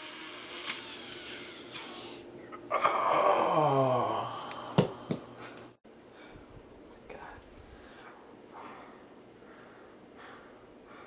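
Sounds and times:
man groaning: 2.7 - 5.1.

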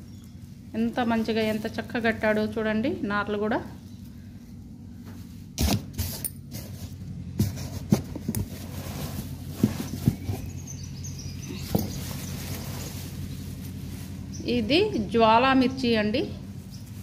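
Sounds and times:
low hum: 0.0 - 17.0
plastic and cardboard crinkling: 5.2 - 10.7, 11.6 - 14.4.

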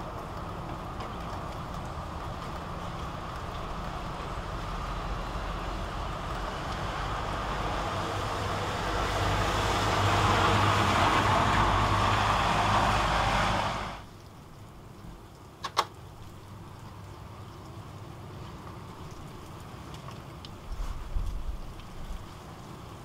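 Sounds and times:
motor vehicle engine: 0.0 - 14.0
road noise: 0.0 - 23.0.

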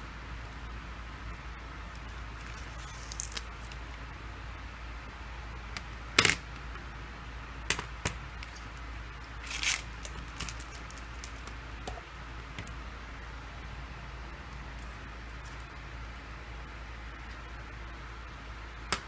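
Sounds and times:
steady low hum: 0.0 - 19.0
plastic packaging crinkle: 2.4 - 3.8, 8.4 - 11.6.

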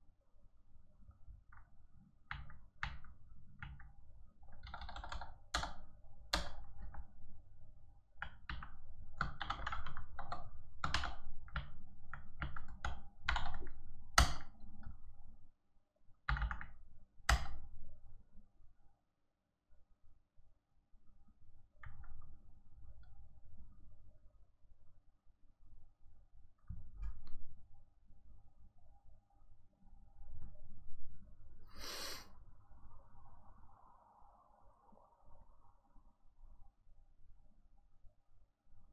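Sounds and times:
typing on computer keyboard: 2.3 - 7.3, 8.2 - 14.9, 16.3 - 17.8.

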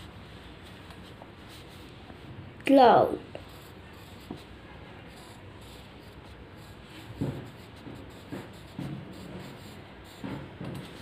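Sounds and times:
pencil scratching on paper: 3.3 - 11.0.

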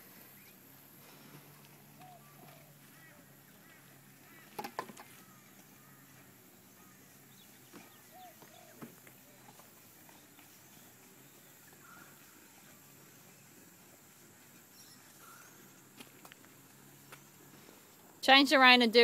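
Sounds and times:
distant honking bird calls: 2.0 - 8.9.

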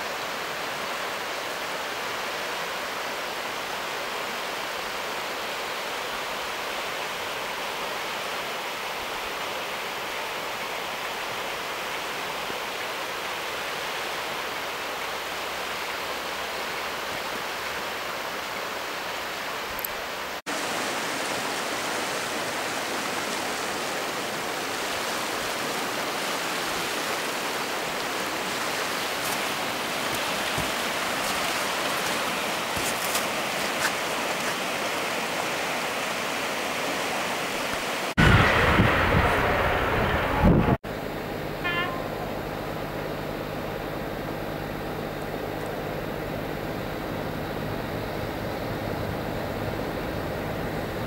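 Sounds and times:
river water rushing: 0.0 - 38.4.

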